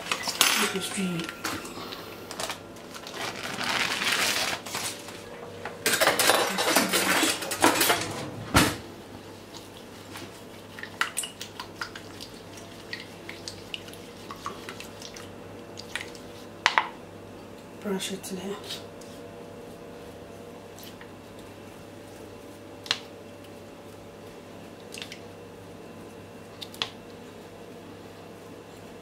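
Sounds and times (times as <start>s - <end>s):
utensils clacking: 0.0s - 2.6s, 5.8s - 8.4s.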